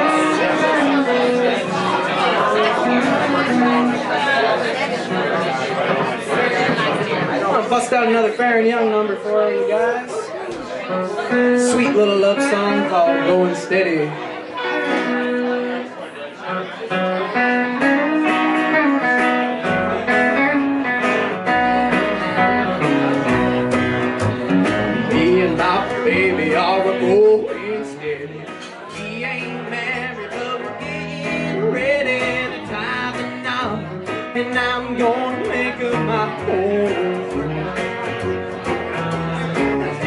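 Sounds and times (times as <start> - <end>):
country band playing: 0.0 - 40.0
man singing: 11.3 - 14.3, 24.9 - 37.8
upright bass low notes: 17.8 - 40.0.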